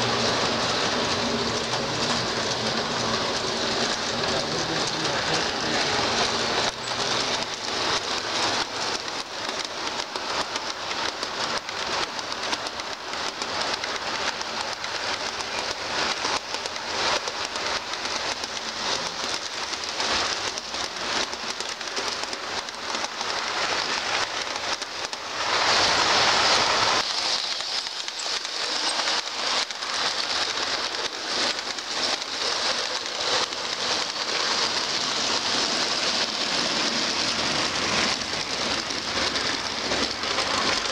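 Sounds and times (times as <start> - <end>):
model train wheels clicking: 0.0 - 40.9
steady hiss: 3.0 - 40.9.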